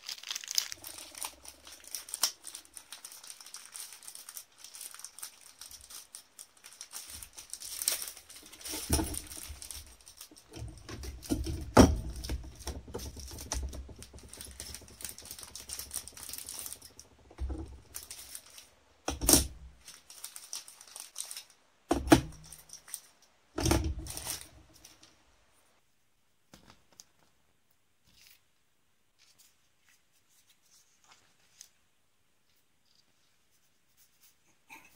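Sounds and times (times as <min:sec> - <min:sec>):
plastic bags crinkling: 0:00.0 - 0:25.2.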